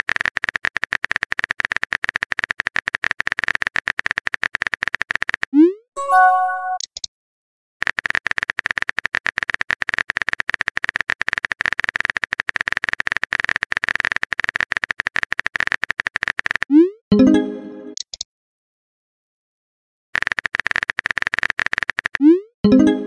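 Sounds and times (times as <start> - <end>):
message chime: 6.0 - 6.8, 17.1 - 18.0, 22.7 - 23.0
keyboard typing clicks: 6.0 - 7.1, 20.2 - 23.0.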